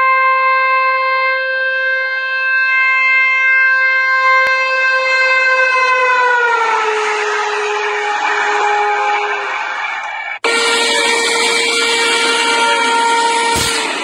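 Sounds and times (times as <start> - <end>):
locomotive air horn blast: 4.2 - 9.7, 10.4 - 14.0.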